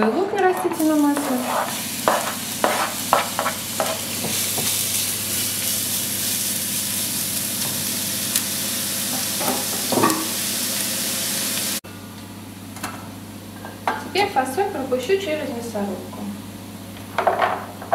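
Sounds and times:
onion sizzling in a pan: 0.7 - 11.8
wooden spoon scraping and knocking: 1.2 - 4.7.

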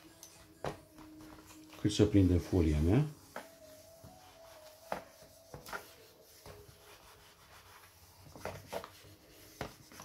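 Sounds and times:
iron rubbing plastic film: 0.4 - 10.0.

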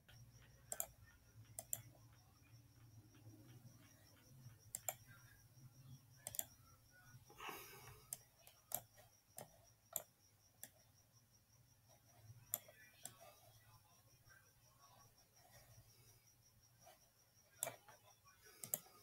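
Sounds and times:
computer mouse clicks: 0.0 - 5.1, 6.2 - 6.6, 7.9 - 10.8, 12.4 - 13.3, 17.5 - 19.0.

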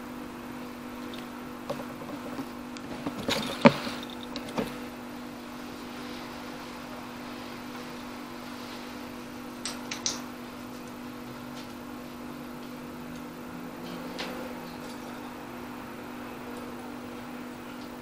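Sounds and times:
steady low hum: 0.0 - 18.0
knocks and clicks: 1.7 - 4.8.

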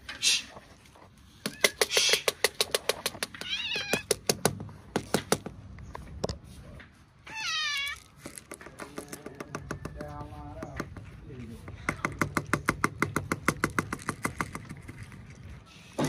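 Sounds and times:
cat meowing: 3.3 - 4.1, 7.2 - 8.0
kibble rattling in plastic bottle: 7.7 - 9.8, 12.0 - 15.5.

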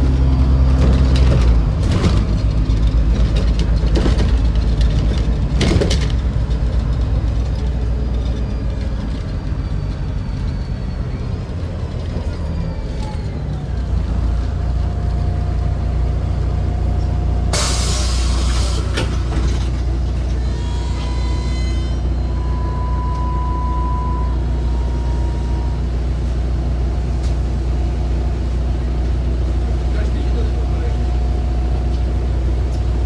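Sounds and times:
bus engine drone: 0.0 - 33.0
air brake hiss: 17.5 - 19.0.

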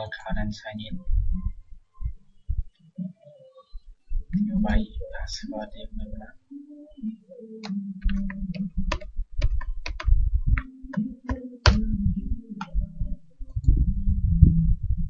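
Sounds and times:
low steady hum: 0.0 - 15.0
keyboard typing: 7.6 - 13.0.

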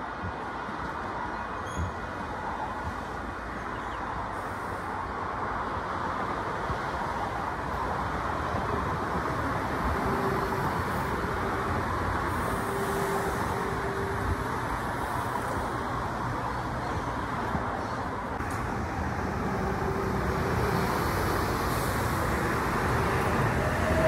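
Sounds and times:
train wheels rumbling: 18.4 - 24.0.

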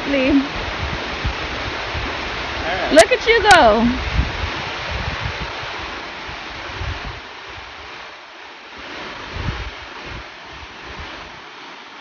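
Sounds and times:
waterfall rushing: 0.0 - 12.0
wind buffeting microphone: 0.0 - 12.0.

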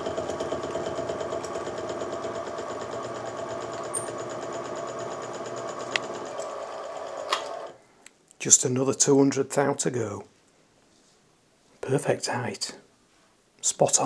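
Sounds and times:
milling machine motor hum: 0.0 - 7.8.

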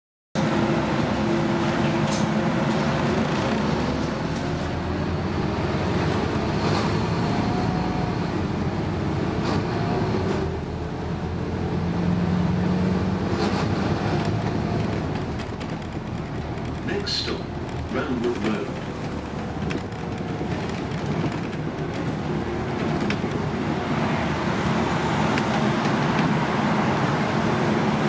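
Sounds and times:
bus engine and road rumble: 0.4 - 28.0
bodywork rattles: 14.2 - 18.0, 18.8 - 23.7.

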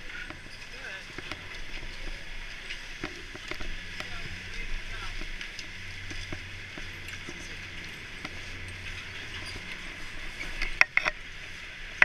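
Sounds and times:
low hum of chairlift machinery: 0.0 - 12.0
faint clicks: 5.1 - 12.0.

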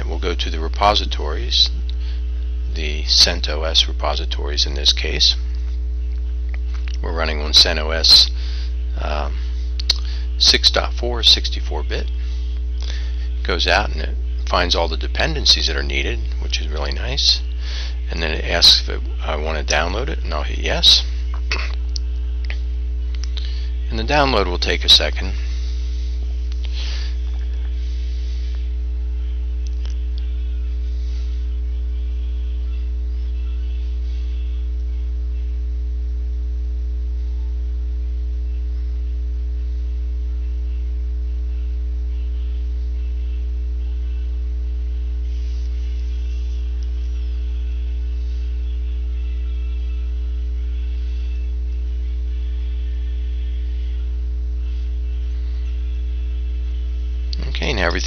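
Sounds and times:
electrical mains hum: 0.0 - 58.0
faint higher steady tones: 0.0 - 58.0.

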